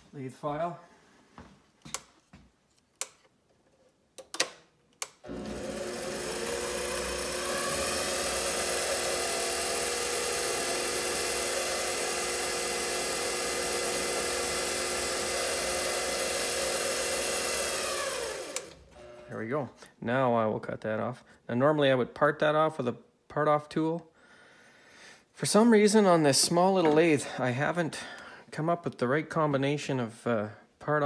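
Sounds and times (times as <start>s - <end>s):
lathe motor whine: 5.3s - 19.3s.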